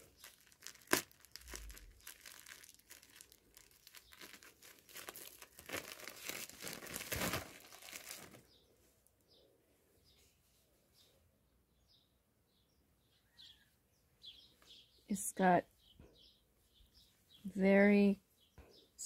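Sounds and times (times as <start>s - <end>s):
plastic packaging crinkling and tearing: 0.0s - 8.5s.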